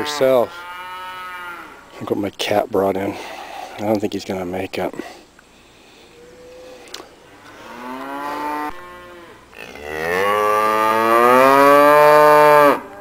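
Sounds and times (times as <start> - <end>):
cow mooing: 7.5 - 13.0.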